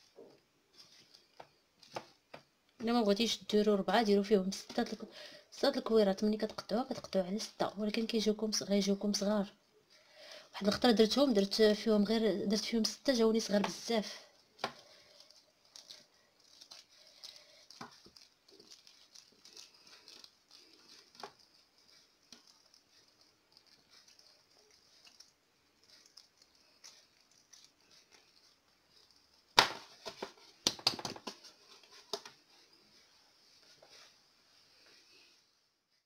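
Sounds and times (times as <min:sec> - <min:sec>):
hands rubbing dough: 0:10.7 - 0:36.0
dough knocks and slaps: 0:29.6 - 0:31.4.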